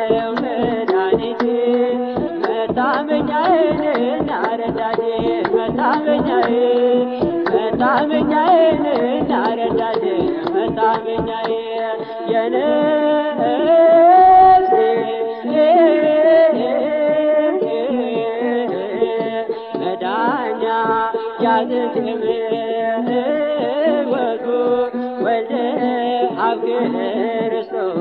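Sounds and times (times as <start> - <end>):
drum beat: 0.0 - 11.7
sustained instrumental accompaniment: 0.0 - 12.5
man singing a hymn: 0.0 - 28.0.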